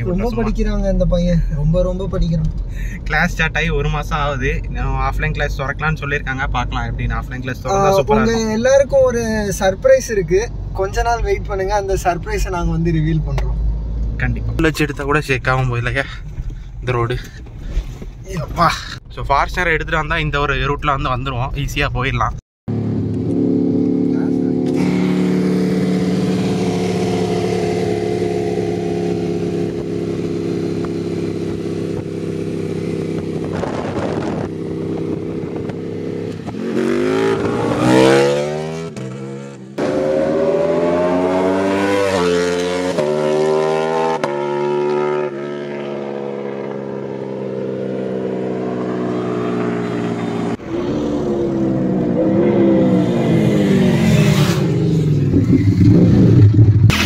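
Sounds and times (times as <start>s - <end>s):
motorcycle engine revving: 22.7s - 57.0s
motorcycle accelerating through gears: 22.8s - 57.0s
motorcycle exhaust at speed: 22.8s - 57.0s.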